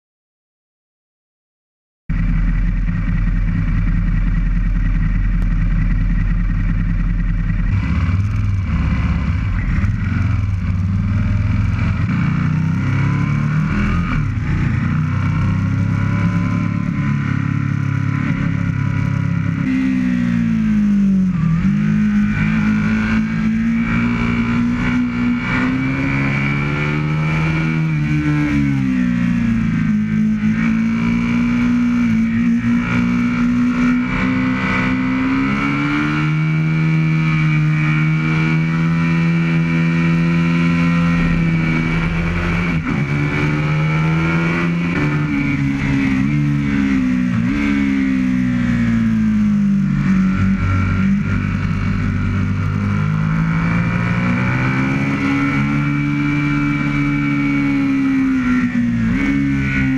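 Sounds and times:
motorcycle engine accelerating: 2.1s - 59.9s.

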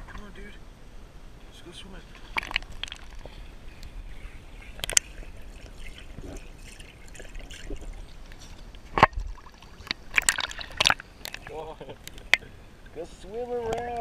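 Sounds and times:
pool water lapping and splashing: 2.0s - 14.0s
dog paddling: 4.6s - 11.6s.

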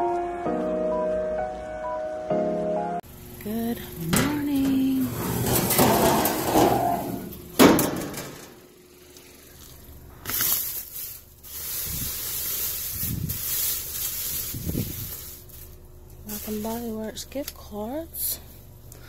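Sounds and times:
plastic bags crinkling: 9.0s - 17.6s.

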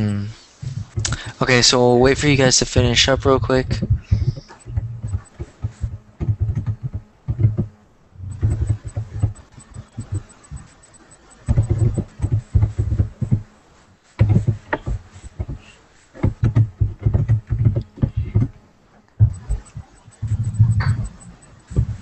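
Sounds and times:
typing on computer keyboard: 8.3s - 12.4s, 19.3s - 22.0s.

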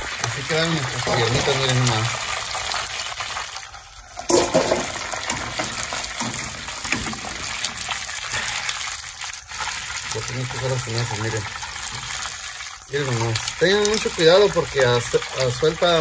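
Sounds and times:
oil sizzling in deep fryer: 0.0s - 16.0s
metal strainer clattering on pot: 4.3s - 8.6s.

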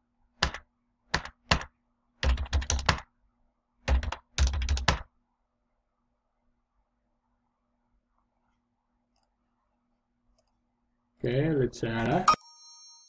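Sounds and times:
typing on computer keyboard: 1.2s - 3.0s, 3.9s - 5.0s.

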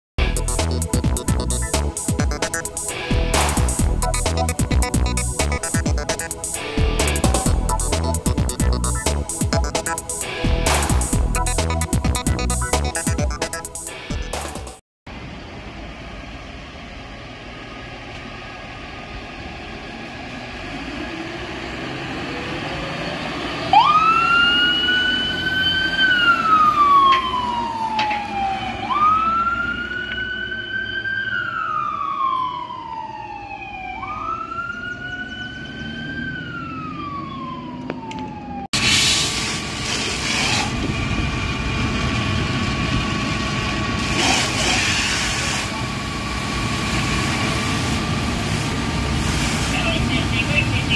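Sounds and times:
fire engine running: 0.2s - 50.9s
siren wailing: 4.4s - 10.5s, 22.2s - 38.7s
fire hose spraying water: 38.8s - 40.8s, 44.0s - 50.9s.

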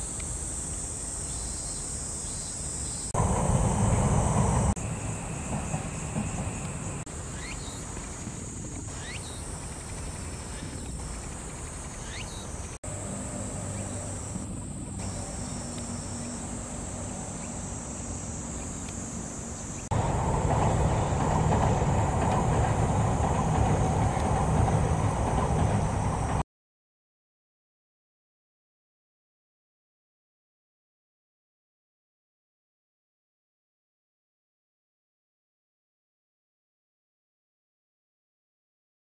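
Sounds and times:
high steady hiss: 0.0s - 26.4s
outdoor background rumble: 0.0s - 26.4s
faint rising chirps: 1.2s - 24.0s.

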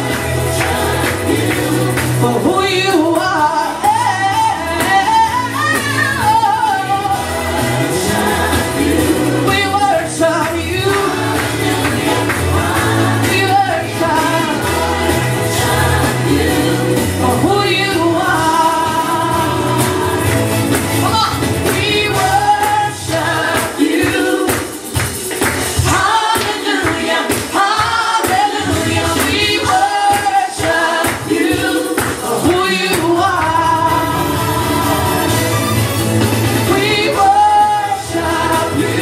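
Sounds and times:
backing music: 0.0s - 39.0s
woman singing into a microphone: 1.0s - 7.3s, 8.9s - 11.9s, 13.1s - 14.6s, 16.3s - 20.2s, 25.9s - 35.2s, 36.7s - 39.0s.

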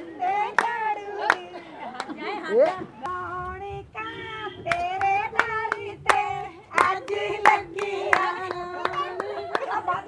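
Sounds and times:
women singing folk song: 0.0s - 2.0s, 2.8s - 10.0s.

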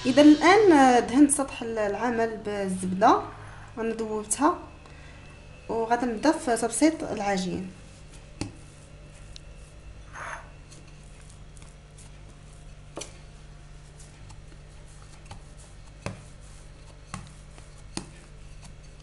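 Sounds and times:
faint low hum: 0.0s - 19.0s
rolling pin rubbing on dough: 6.0s - 19.0s.

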